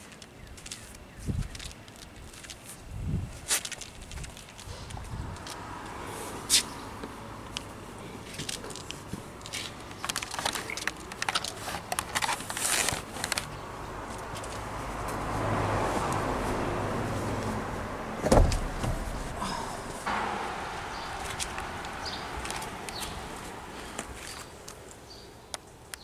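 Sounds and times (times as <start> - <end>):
plastic seat parts clicking and rattling: 7.5 - 13.6.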